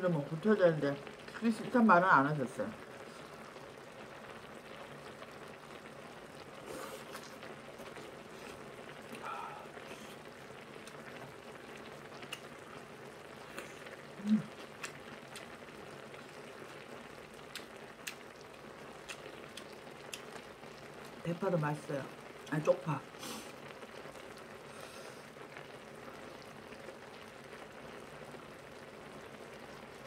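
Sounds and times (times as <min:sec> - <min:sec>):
stew simmering in a pan: 0:00.0 - 0:30.0
eating sounds: 0:06.6 - 0:11.3, 0:12.1 - 0:12.8, 0:13.4 - 0:15.6, 0:17.4 - 0:18.3, 0:19.0 - 0:20.4
low vocal hum: 0:09.2 - 0:10.2, 0:14.2 - 0:14.6.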